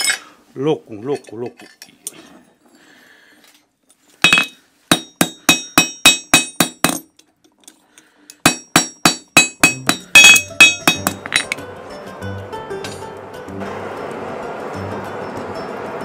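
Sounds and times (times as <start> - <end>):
hammer striking horseshoe on anvil: 4.2 - 7.2, 8.4 - 11.6.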